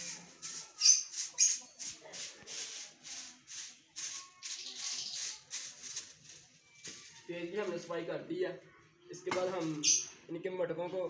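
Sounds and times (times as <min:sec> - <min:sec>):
brush scraping cage floor: 0:00.0 - 0:07.9.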